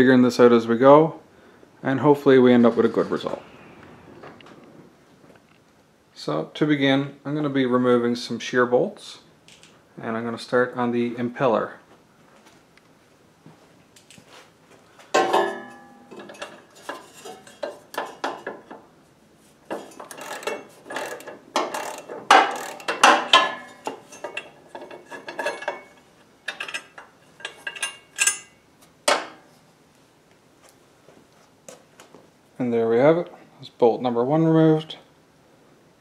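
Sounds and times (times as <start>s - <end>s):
wrench clicking and clinking metal: 19.7s - 28.5s.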